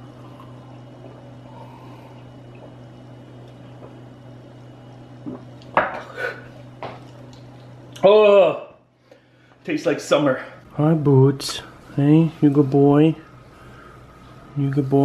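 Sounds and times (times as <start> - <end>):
low steady hum: 0.0 - 15.0
man gulping a drink: 2.1 - 4.1.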